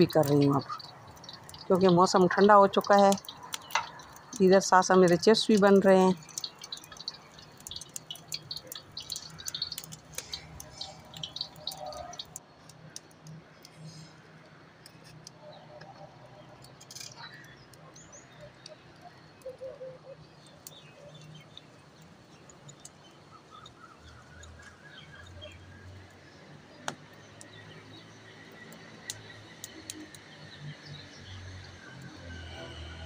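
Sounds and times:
birds chirping: 0.0s - 33.0s
sharp clicks: 0.1s - 13.8s.

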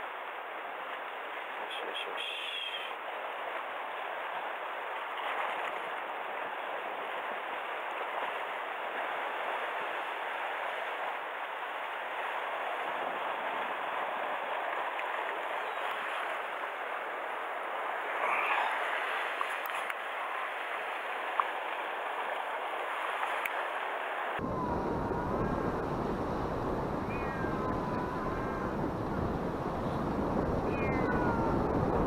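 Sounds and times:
sea water washing against rocks: 0.0s - 24.5s.

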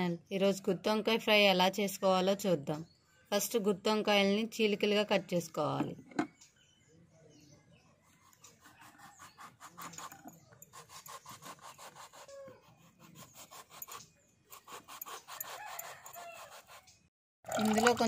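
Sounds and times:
knife sawing through vegetable: 8.1s - 17.0s.

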